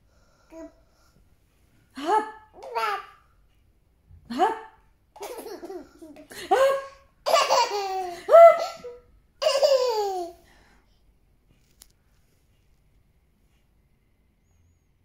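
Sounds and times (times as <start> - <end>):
baby babbling: 2.6 - 3.2
baby laughing: 5.2 - 10.4.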